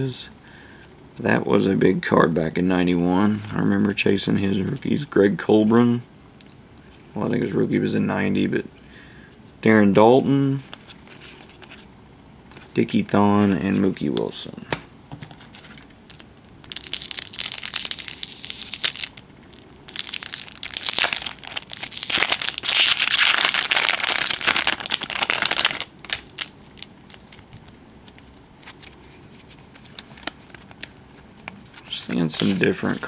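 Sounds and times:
wrapper rustling and tearing: 15.5s - 33.0s.

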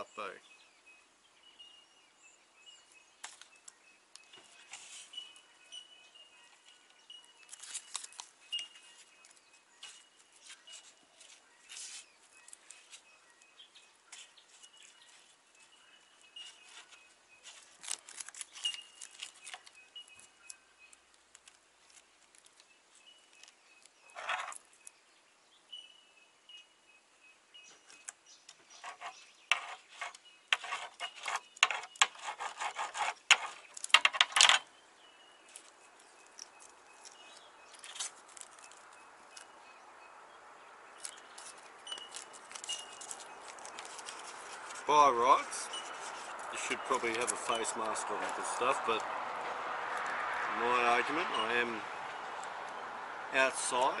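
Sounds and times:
faint high bird chirps: 0.0s - 21.1s, 22.6s - 47.9s
paper and gloved hands rustling: 7.4s - 13.1s, 14.0s - 20.4s, 35.5s - 39.5s, 41.0s - 48.8s.

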